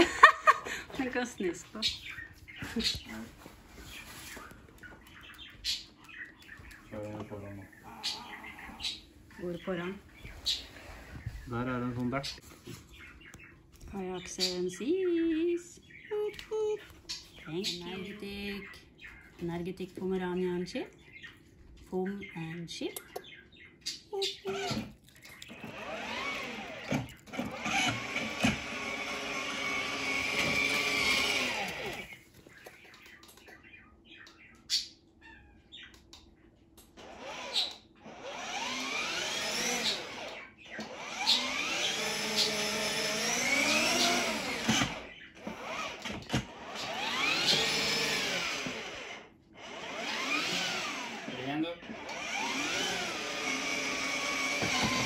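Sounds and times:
toy car electric motor whining: 0:25.5 - 0:32.2, 0:37.0 - 0:55.0.

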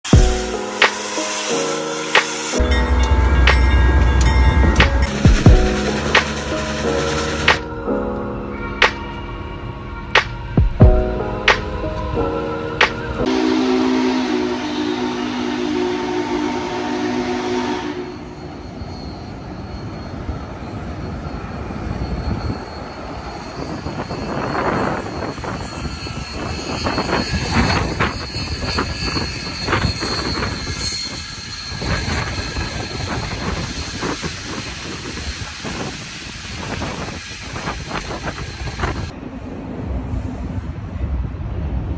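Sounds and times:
steam train rumbling past: 0:00.1 - 0:41.9
train clanks and knocks: 0:02.1 - 0:07.8, 0:18.4 - 0:39.2.

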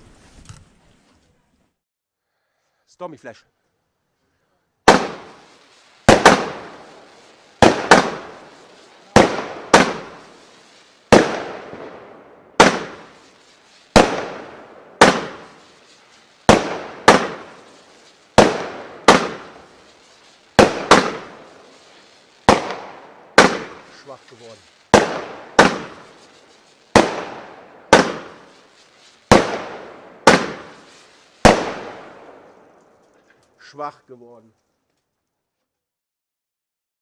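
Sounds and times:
firework bangs: 0:04.8 - 0:33.8.

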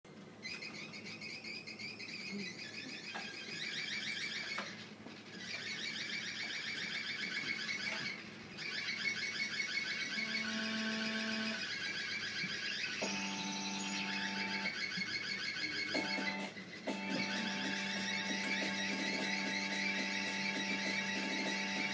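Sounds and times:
high chirping keyboard trills: 0:00.4 - 0:21.9.

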